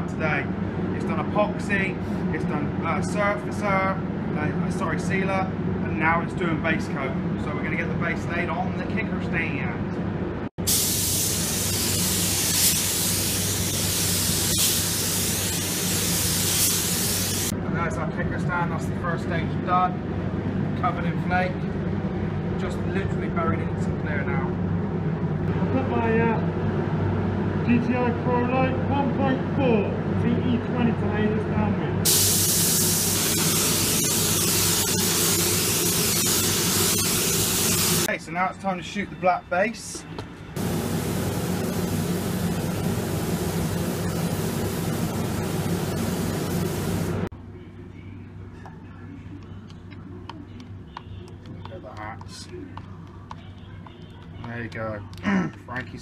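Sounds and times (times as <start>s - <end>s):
paint spray gun hissing: 10.6s - 17.5s, 32.1s - 38.1s, 40.6s - 47.3s.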